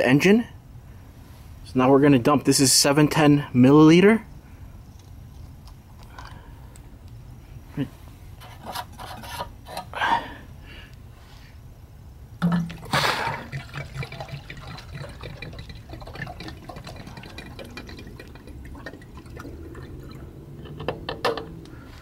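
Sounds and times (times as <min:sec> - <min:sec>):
fluid pouring from plastic bottle: 0:12.4 - 0:20.4.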